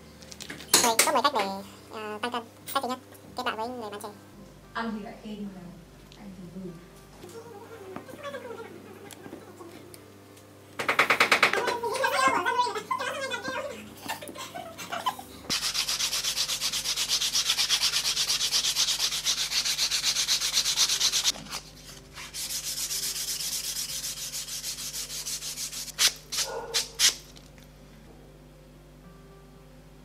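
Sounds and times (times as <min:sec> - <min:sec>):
rubbing strokes on leather: 0:15.5 - 0:27.2.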